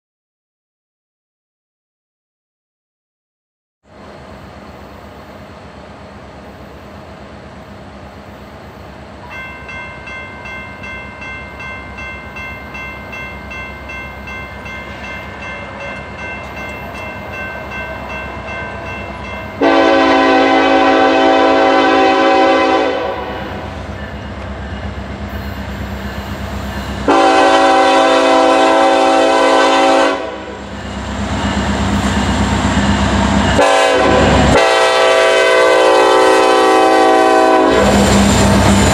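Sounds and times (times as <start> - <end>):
train rumble: 3.9 - 38.9
crossing bell ringing: 9.2 - 22.5, 23.2 - 28.9, 30.4 - 33.8
locomotive horn blasts: 19.6 - 23.7, 27.0 - 30.6, 33.6 - 38.0.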